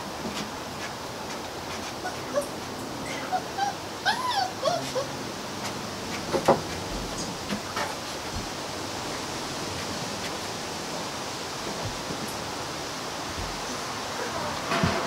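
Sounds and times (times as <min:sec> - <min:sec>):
steady background hiss: 0:00.0 - 0:15.0
puppy paws tapping on wooden deck: 0:05.6 - 0:10.5, 0:11.6 - 0:12.7, 0:13.3 - 0:13.8.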